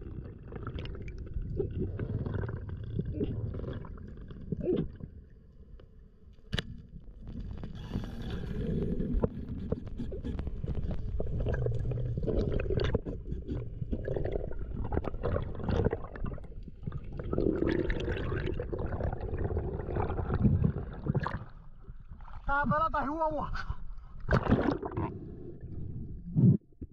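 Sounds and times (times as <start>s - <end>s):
underwater gurgling rush: 7.3s - 22.4s, 24.3s - 26.5s.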